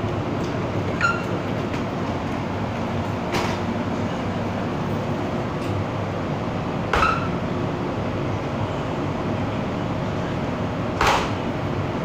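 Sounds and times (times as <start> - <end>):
train car humming: 0.0 - 12.0
sharp knocks: 6.9 - 7.3.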